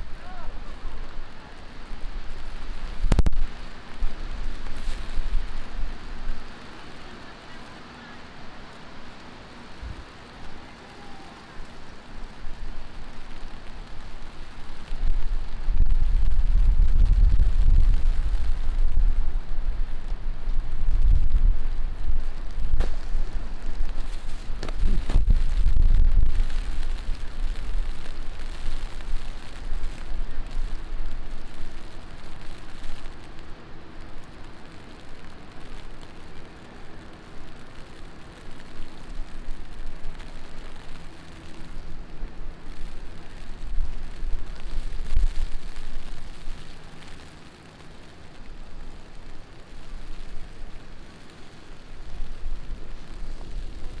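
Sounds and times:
heavy rain on street: 0.0 - 54.0
low rumbles: 8.7 - 36.3.

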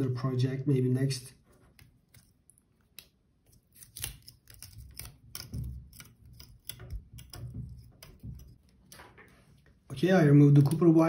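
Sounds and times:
wire clicking and scraping on plastic: 1.4 - 11.0.

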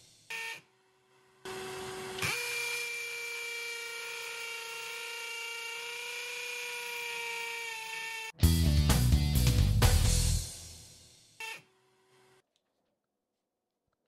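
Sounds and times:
hammer drill boring into concrete: 1.5 - 8.4.

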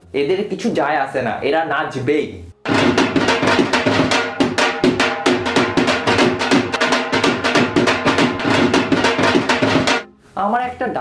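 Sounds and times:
fast dhol drumming: 2.7 - 10.1.

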